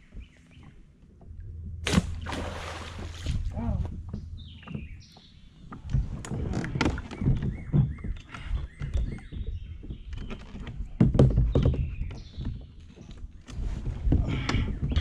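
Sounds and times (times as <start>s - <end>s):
knocks and thumps in kayak: 0.2s - 12.8s
birds chirping: 3.6s - 13.6s, 14.2s - 15.0s.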